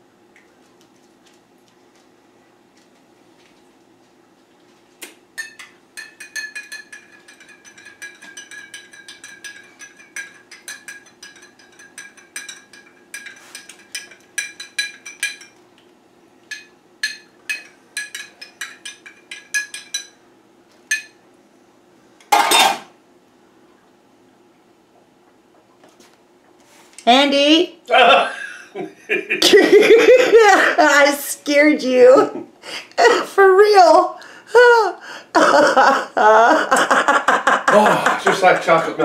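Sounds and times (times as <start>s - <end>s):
metal spoon clinking against glass: 5.4s - 15.6s, 16.5s - 20.2s.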